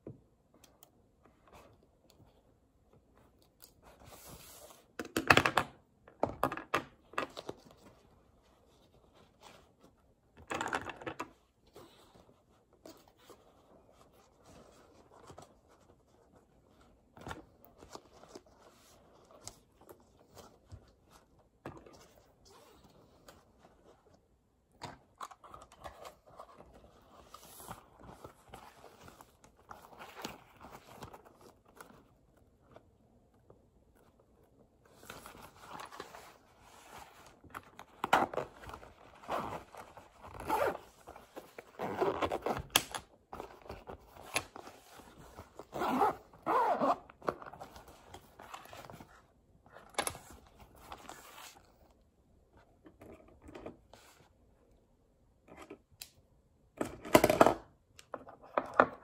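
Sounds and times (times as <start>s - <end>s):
fabric rustling: 39.0s - 42.6s.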